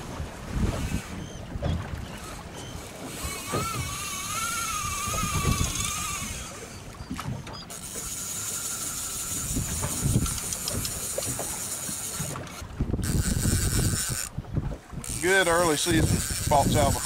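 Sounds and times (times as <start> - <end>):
wind buffeting microphone: 0.0 - 7.6, 9.2 - 17.0
fly reel whirring: 2.1 - 6.9, 7.7 - 14.3, 15.0 - 17.0.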